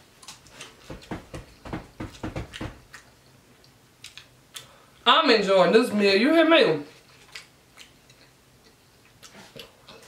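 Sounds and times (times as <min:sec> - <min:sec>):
person chewing crispy food: 0:02.8 - 0:05.0, 0:06.9 - 0:10.0.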